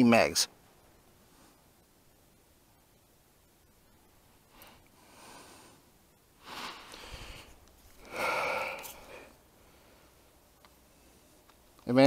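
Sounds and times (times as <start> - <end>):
man breathing out heavily: 4.5 - 10.2.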